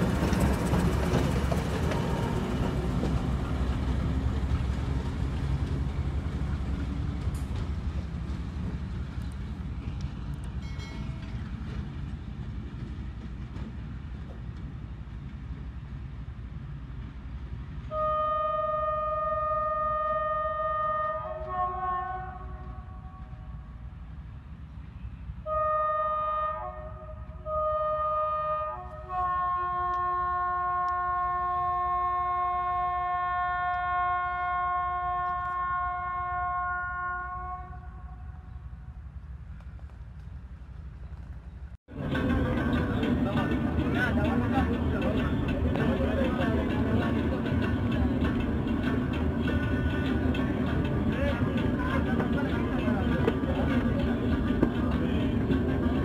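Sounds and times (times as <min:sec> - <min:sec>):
diesel locomotive rumbling: 0:00.0 - 0:56.0
locomotive horn blast: 0:17.9 - 0:23.8, 0:25.4 - 0:38.5.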